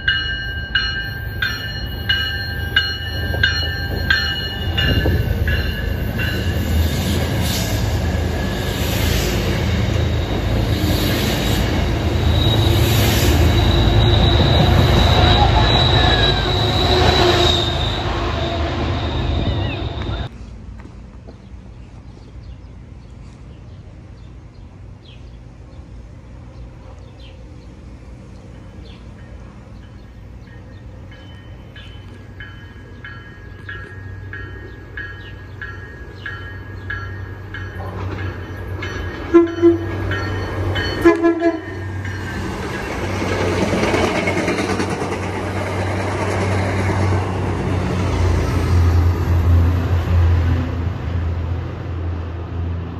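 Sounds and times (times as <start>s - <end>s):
train bell ringing: 0.0s - 10.8s, 11.8s - 20.3s, 28.5s - 44.6s
diesel train rumbling on rails: 0.0s - 52.9s
train horn blasts: 12.4s - 20.3s, 39.2s - 40.0s, 40.9s - 42.0s.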